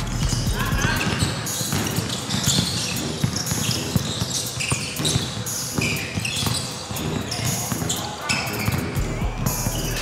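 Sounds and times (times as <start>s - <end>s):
sneakers squeaking on wooden floor: 0.0s - 10.0s
ball bouncing: 0.1s - 8.0s.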